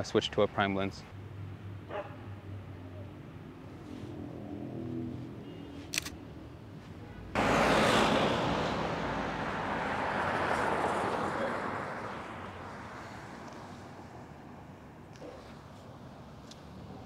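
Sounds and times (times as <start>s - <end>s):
street traffic noise: 0.0s - 17.0s
vehicle driving past: 7.4s - 14.2s.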